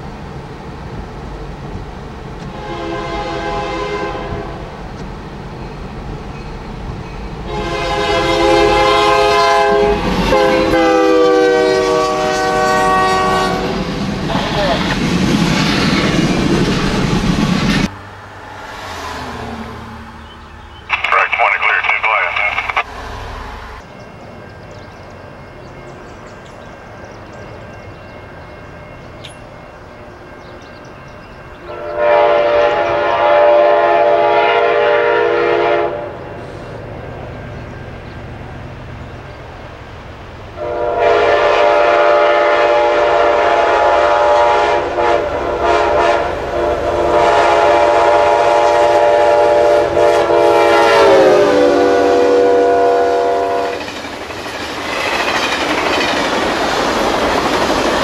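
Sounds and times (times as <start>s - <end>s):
locomotive air horn chord: 2.5s - 4.6s, 7.5s - 13.8s, 31.7s - 36.1s, 40.6s - 53.8s
passenger cars rumbling by: 13.8s - 23.9s.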